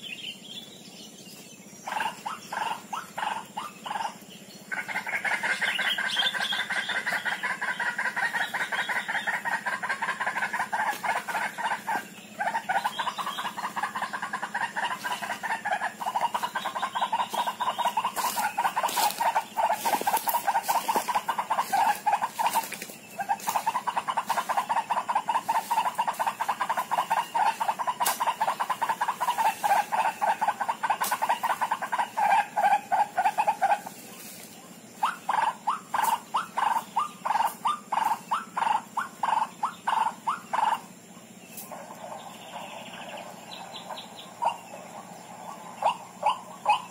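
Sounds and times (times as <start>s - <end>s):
bird clucking call: 1.7s - 46.9s.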